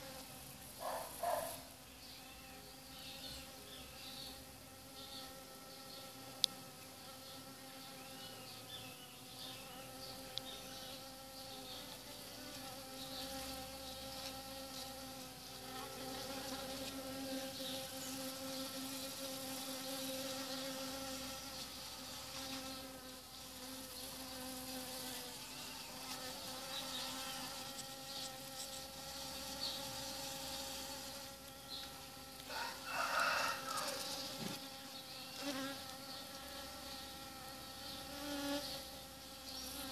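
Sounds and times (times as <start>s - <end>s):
bee buzzing: 0.0s - 39.9s.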